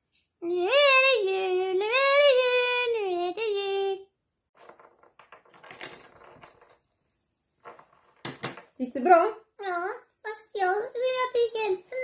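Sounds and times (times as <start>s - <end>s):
high-pitched voice singing: 0.4s - 4.1s.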